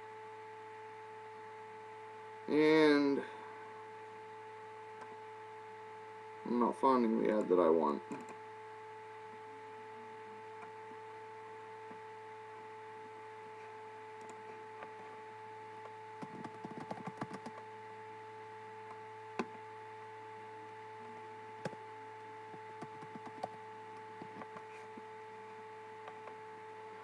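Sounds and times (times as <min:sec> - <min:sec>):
steady electrical hum: 0:00.0 - 0:27.0
keyboard typing: 0:16.2 - 0:17.6, 0:22.8 - 0:23.6.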